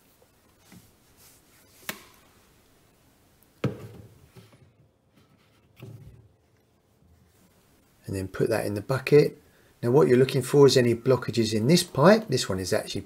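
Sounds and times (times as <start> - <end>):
plastic bucket knocks: 3.6 - 4.2.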